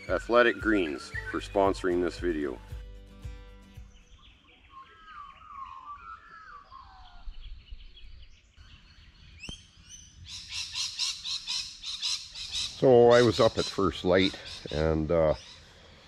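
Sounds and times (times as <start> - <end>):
fluting warbling birdsong: 0.0 - 2.7, 3.7 - 16.0
rapid bird chirps: 3.8 - 16.0.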